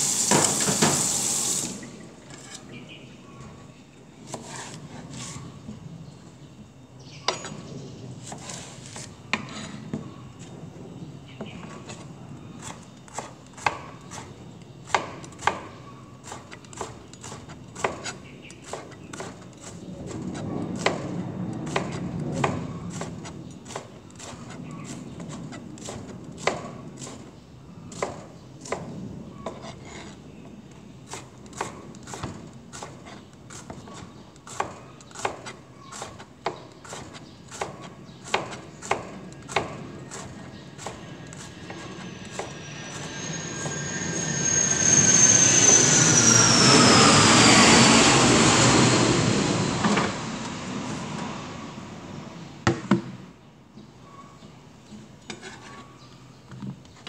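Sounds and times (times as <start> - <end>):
knife chopping on plastic board: 31.1 - 41.1.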